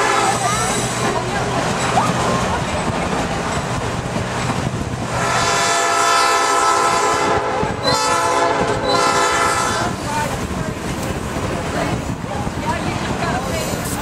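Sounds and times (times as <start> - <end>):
locomotive air horn blasts: 0.0 - 1.0, 5.1 - 10.0
train rumbling and clattering: 0.0 - 14.0.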